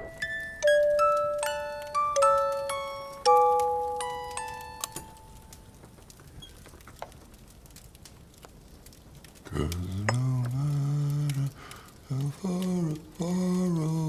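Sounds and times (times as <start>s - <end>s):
music box chiming notes: 0.0s - 5.4s
deep voice singing low notes: 9.5s - 14.0s.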